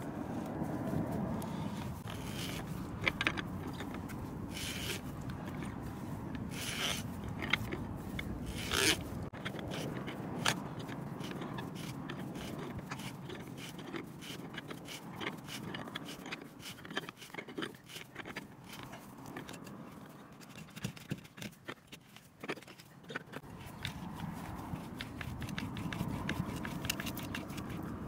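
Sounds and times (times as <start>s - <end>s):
auger scraping and crunching wood: 0.0s - 28.0s
auger clicks: 24.8s - 28.0s.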